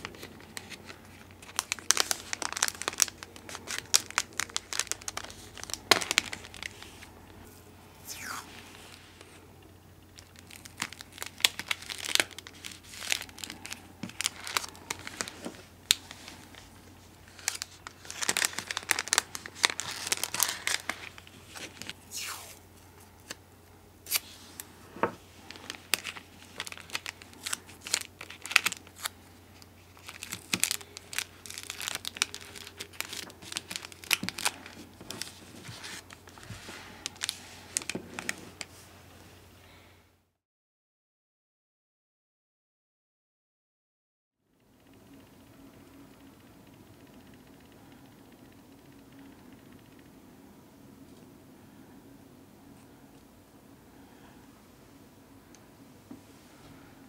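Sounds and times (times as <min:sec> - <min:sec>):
plastic bags crinkling: 0:00.0 - 0:09.3, 0:10.2 - 0:22.2, 0:24.1 - 0:38.8
tape being torn: 0:24.1 - 0:24.3.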